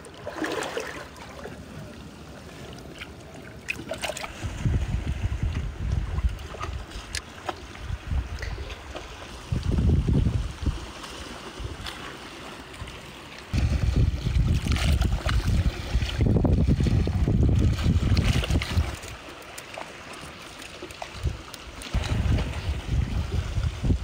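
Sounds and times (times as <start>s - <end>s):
wind buffeting microphone: 4.3s - 7.2s, 7.8s - 11.0s, 13.5s - 19.0s, 21.2s - 24.0s.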